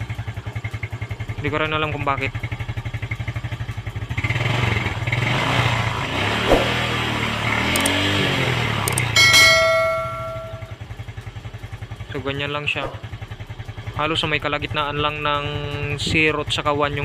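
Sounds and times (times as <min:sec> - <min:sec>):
motorcycle engine idling and revving: 0:00.0 - 0:17.0
bell-like chime: 0:09.2 - 0:10.8.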